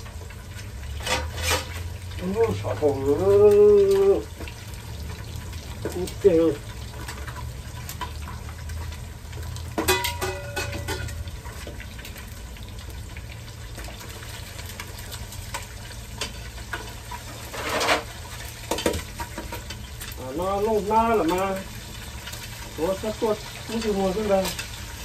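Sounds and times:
food sizzling in hot oil: 0.0 - 25.0
hot oil crackling: 0.0 - 25.0
metal tongs clanking on pot: 1.0 - 2.6, 9.8 - 11.6, 16.2 - 20.2, 23.4 - 24.8.

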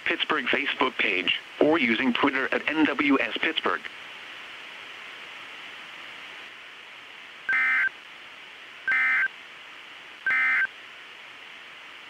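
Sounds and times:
radio hiss: 0.0 - 12.0
digital data tone bursts: 7.5 - 7.9, 8.9 - 9.3, 10.3 - 10.7.

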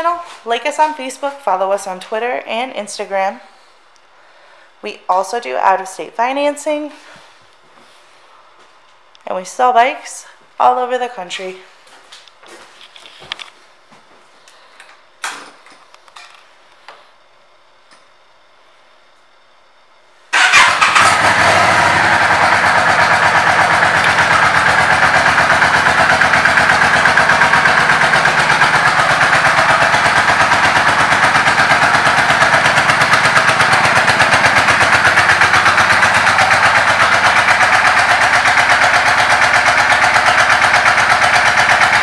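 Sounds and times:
motorcycle engine idling: 20.3 - 42.0
motorcycle engine starting: 20.3 - 42.0.

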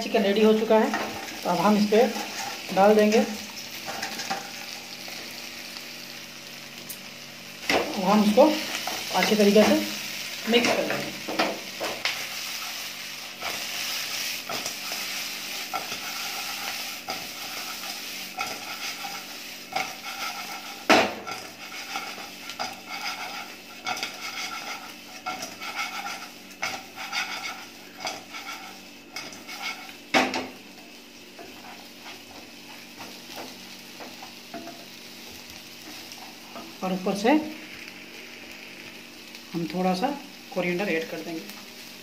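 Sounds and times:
chicken sizzling in a wok: 0.0 - 42.0
wooden spatula scraping a pan: 0.9 - 4.5, 10.6 - 30.0.

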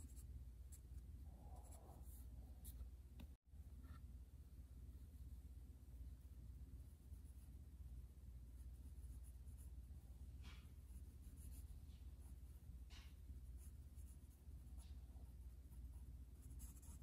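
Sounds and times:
pencil scratching on paper: 10.4 - 17.0.

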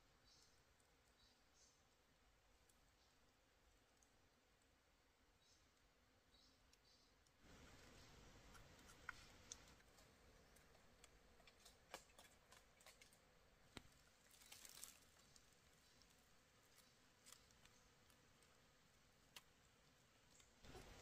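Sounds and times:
faint clicks: 6.7 - 18.6, 19.2 - 21.0.

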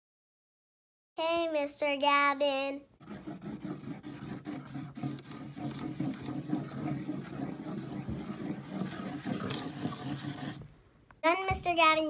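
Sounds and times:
marker scribbling on paper: 3.0 - 10.7.

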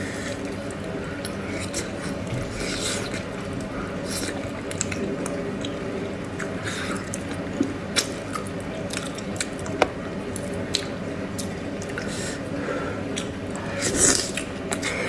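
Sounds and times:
lip smacking while eating: 4.1 - 12.4, 13.1 - 15.0.

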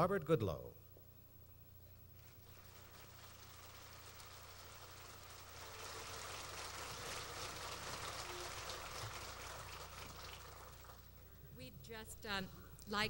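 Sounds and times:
audience applauding: 2.5 - 11.3.

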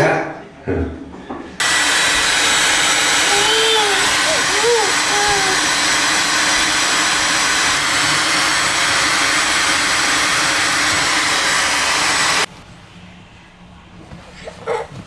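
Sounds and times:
motorised appliance rushing noise: 1.6 - 12.5.

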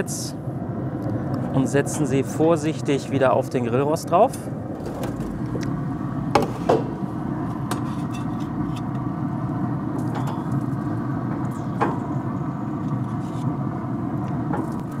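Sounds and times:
low rushing noise: 4.5 - 10.0.

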